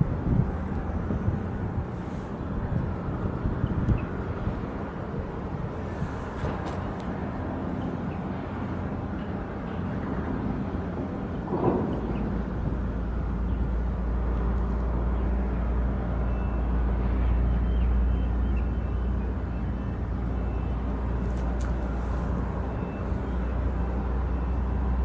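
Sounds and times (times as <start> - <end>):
low engine rumble: 0.0 - 25.0.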